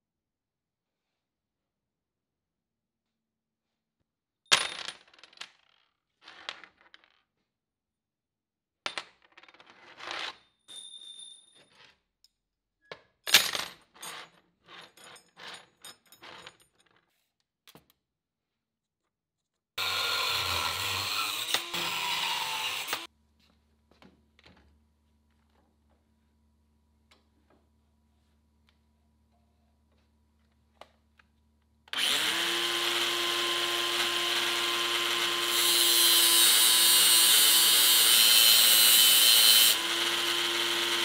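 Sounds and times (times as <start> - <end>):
angle grinder cutting steel: 19.8 - 23.1, 32.0 - 41.0.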